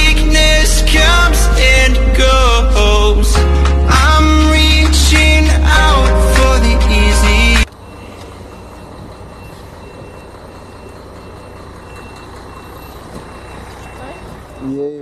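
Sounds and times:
vehicle engine rumble: 0:00.0 - 0:15.0
high beeping alarm: 0:07.8 - 0:15.0.

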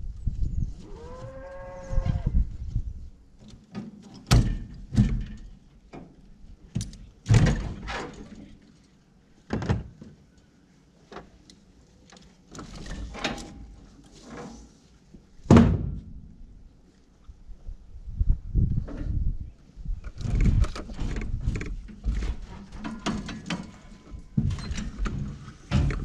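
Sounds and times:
sharp knocks and thuds: 0:04.3 - 0:05.5, 0:15.5 - 0:16.3.

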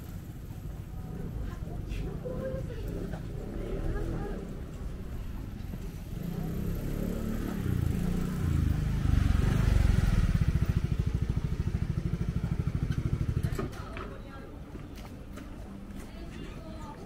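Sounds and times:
vehicle engine chugging: 0:10.0 - 0:13.6.

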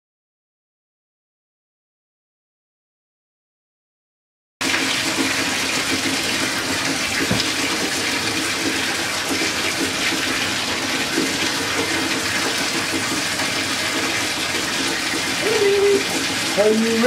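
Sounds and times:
water pouring into bathtub: 0:04.6 - 0:17.0.

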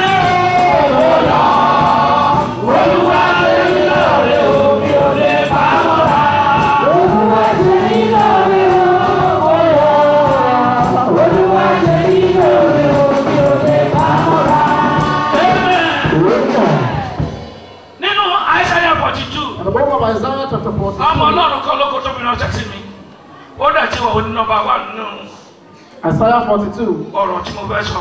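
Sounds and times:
choir singing gospel over loudspeakers: 0:00.0 - 0:20.2.

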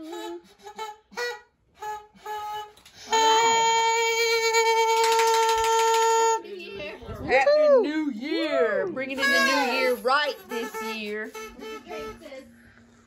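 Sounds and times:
party horn blown: 0:00.0 - 0:06.4, 0:09.1 - 0:12.6.

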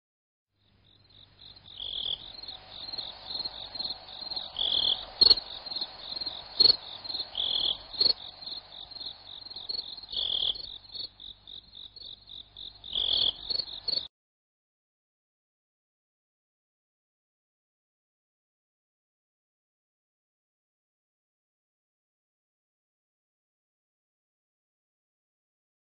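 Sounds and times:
insects chirping: 0:00.6 - 0:14.1.

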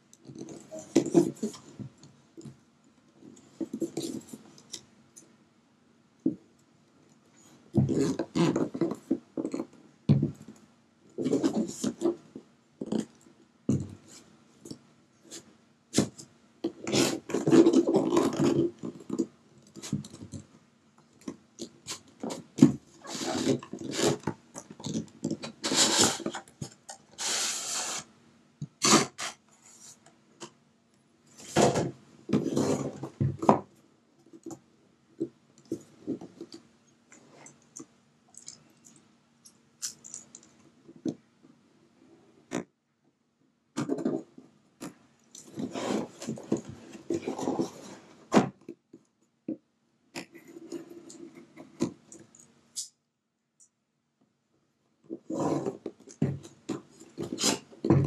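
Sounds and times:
cardboard rubbing and scraping: 0:00.4 - 0:01.8, 0:15.3 - 0:19.1, 0:21.9 - 0:28.1, 0:28.8 - 0:30.0, 0:31.4 - 0:33.5, 0:45.4 - 0:48.6, 0:55.2 - 0:58.0
box sliding out of box: 0:25.6 - 0:26.4, 0:27.2 - 0:28.1.

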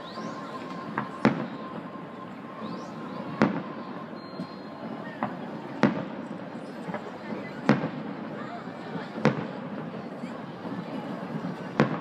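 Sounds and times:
faint firework pops: 0:03.3 - 0:03.8, 0:05.2 - 0:08.0, 0:09.1 - 0:09.7, 0:11.5 - 0:12.0.

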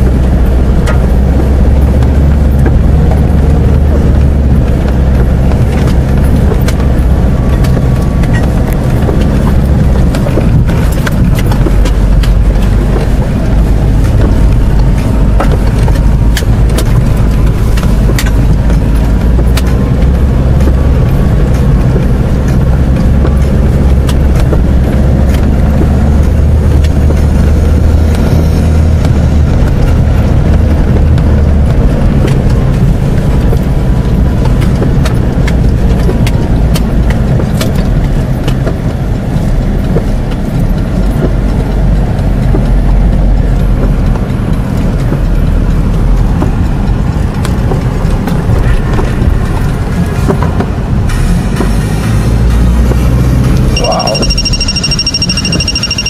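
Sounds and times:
engine and tyre rumble: 0:00.0 - 0:56.0
sharp knocks over bumps: 0:00.0 - 0:56.0.

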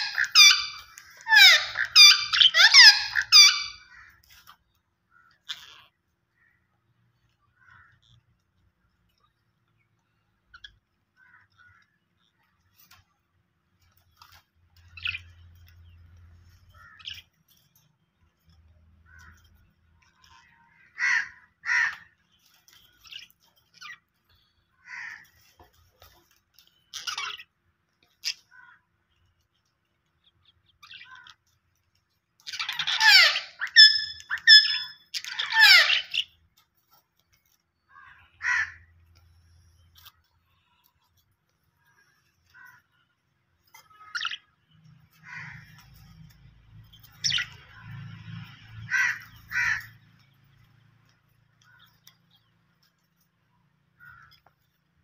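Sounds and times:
budgerigars chirping: 0:00.0 - 0:03.8, 0:32.5 - 0:36.3, 0:46.9 - 0:48.0
harsh chattering calls and whistles: 0:00.0 - 0:03.9, 0:32.4 - 0:36.4, 0:43.8 - 0:52.8.

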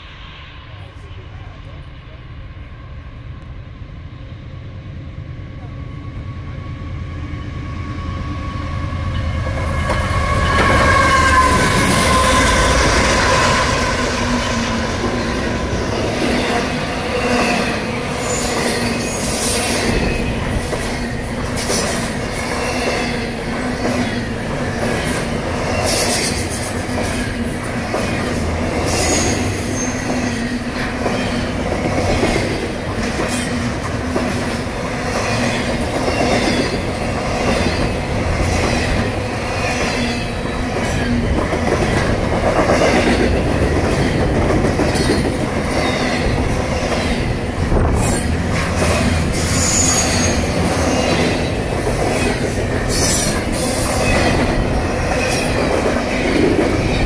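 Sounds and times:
diesel locomotive passing: 0:00.0 - 0:57.0
high wheel squeals: 0:49.4 - 0:51.1.

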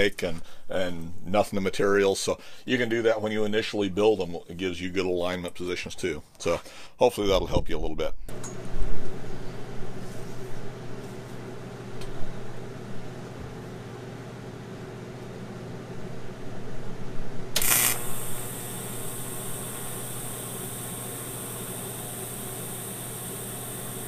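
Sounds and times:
steady shop hum: 0:08.3 - 0:24.0
welding arc crackling and hissing: 0:17.6 - 0:24.0.

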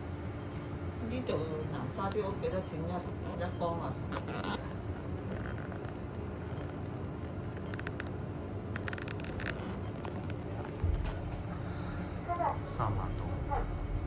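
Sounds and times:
faint hum: 0:00.0 - 0:14.0
bus cabin rumble: 0:09.4 - 0:14.0.

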